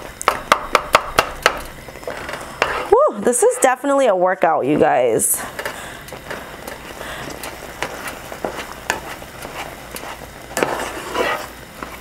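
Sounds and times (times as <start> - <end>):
spatula knocking against pan: 0.3 - 1.7
spatula scraping a frying pan: 2.0 - 4.0, 5.6 - 12.0.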